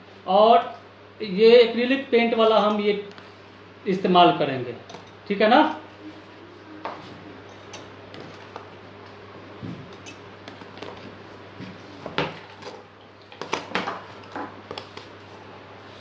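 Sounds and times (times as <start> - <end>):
metal spoon clinking on metal: 4.8 - 5.2, 7.5 - 7.9.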